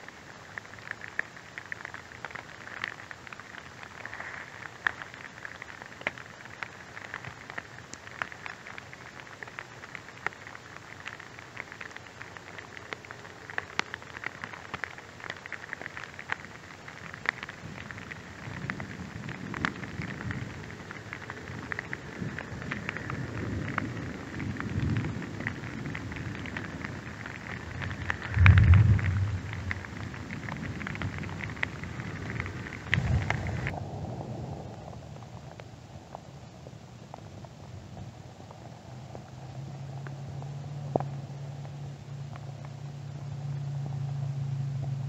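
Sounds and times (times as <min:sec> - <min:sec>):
rain on grass and leaves: 0:00.0 - 0:45.0
low rumble: 0:27.6 - 0:31.3.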